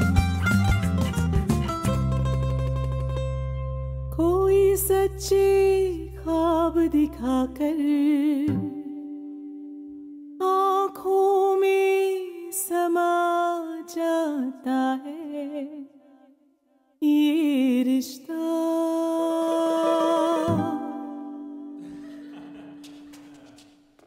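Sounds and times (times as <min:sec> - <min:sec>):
acoustic guitar: 0:00.0 - 0:12.9, 0:19.2 - 0:24.0
woman singing with vibrato: 0:04.2 - 0:09.0, 0:10.4 - 0:15.9, 0:17.0 - 0:21.8.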